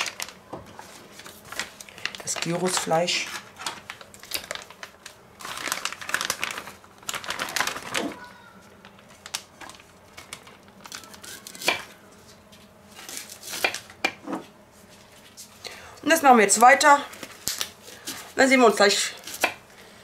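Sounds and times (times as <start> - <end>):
plastic bag crinkling: 0.0 - 14.0, 16.4 - 19.4.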